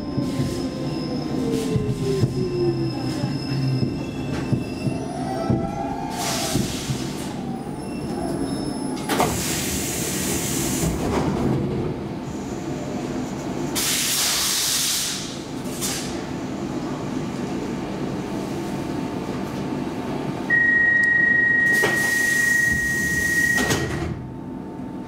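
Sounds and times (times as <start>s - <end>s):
train wheel squeal: 0.0s - 6.8s, 7.5s - 9.1s, 21.5s - 23.9s
low rumble of train carriage: 0.0s - 25.0s.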